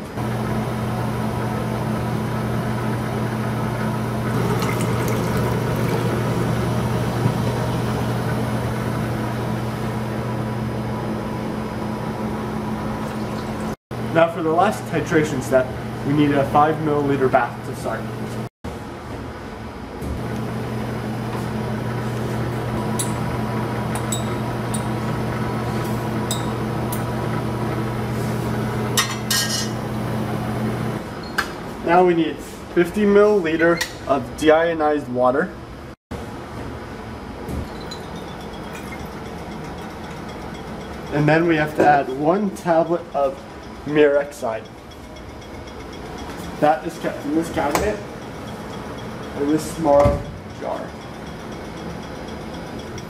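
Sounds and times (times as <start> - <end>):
low electrical hum: 0.2 - 53.0
liquid pouring and splashing: 4.3 - 6.6, 13.0 - 13.8
glass clinks: 37.7 - 40.7.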